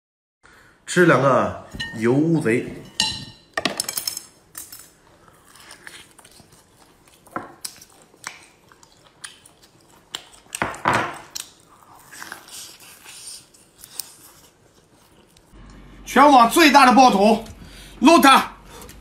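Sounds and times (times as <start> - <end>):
wet biting and chewing: 5.3 - 15.6.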